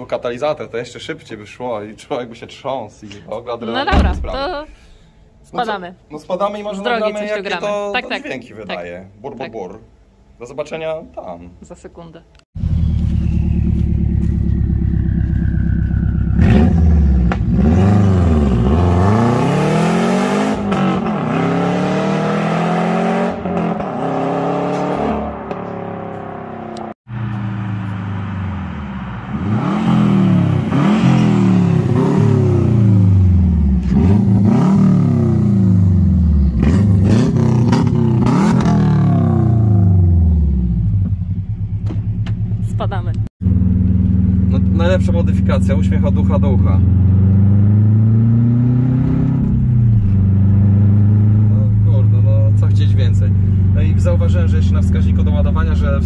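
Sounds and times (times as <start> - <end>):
car engine revving: 12.6 - 56.0.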